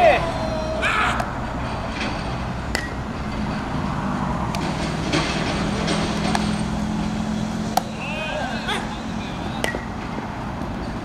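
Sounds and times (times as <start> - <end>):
steady low hum: 0.0 - 11.0
baseballs hitting leather gloves: 2.7 - 3.0, 5.8 - 6.8, 7.7 - 10.3.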